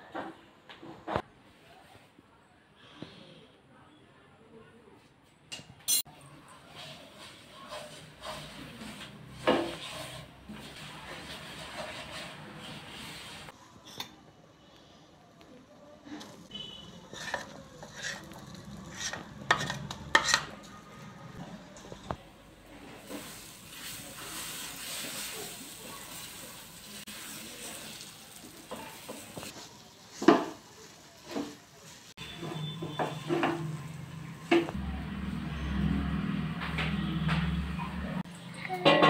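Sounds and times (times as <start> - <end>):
spatula scraping pan: 6.6 - 13.6, 16.2 - 21.4
paste sizzling in hot oil: 16.4 - 20.4, 23.0 - 32.4.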